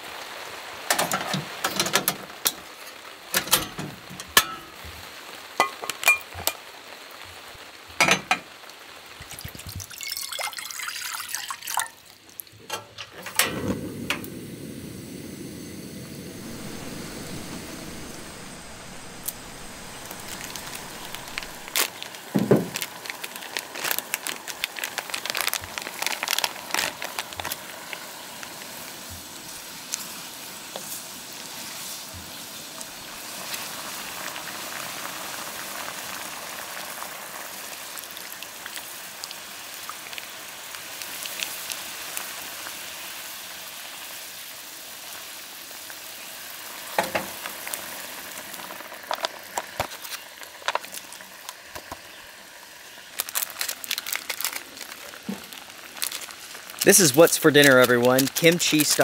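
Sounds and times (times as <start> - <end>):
rain pattering: 0.0 - 10.9, 16.1 - 31.5, 47.4 - 59.0.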